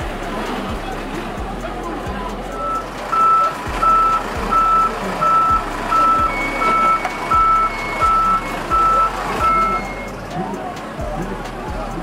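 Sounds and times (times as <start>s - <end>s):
backup alarm beeping: 2.6s - 10.1s.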